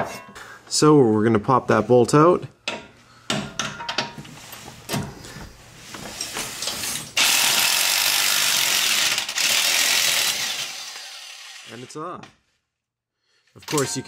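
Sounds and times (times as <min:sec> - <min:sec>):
impact wrench running: 0:07.2 - 0:11.7.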